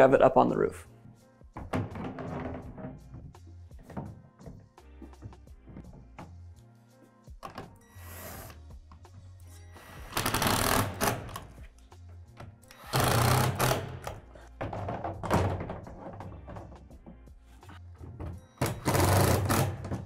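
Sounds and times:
background music: 0.0s - 20.0s
cordless drill driving screws: 9.8s - 11.4s, 12.7s - 14.2s, 18.6s - 19.8s.

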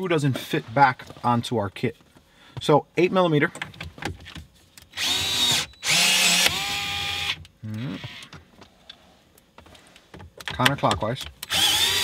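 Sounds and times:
cordless screwdriver motor whine: 5.0s - 7.4s, 11.5s - 12.0s.

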